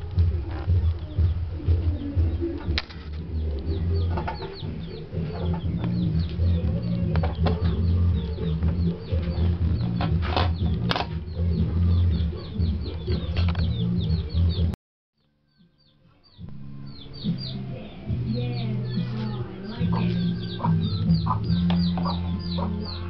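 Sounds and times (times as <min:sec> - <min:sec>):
chickens clucking: 0:00.1 - 0:14.8, 0:16.9 - 0:23.0
high quick peeping chirps: 0:18.9 - 0:23.0.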